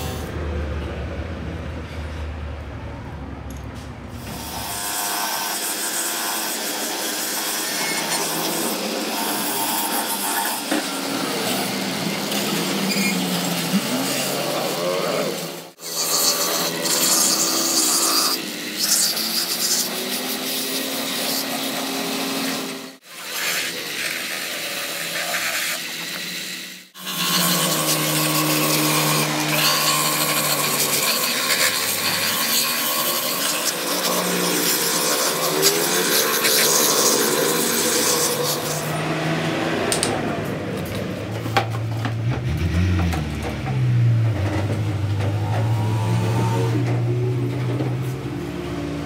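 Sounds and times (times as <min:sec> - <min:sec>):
grinder buffing wheel scraping rubber: 0:05.7 - 0:40.1.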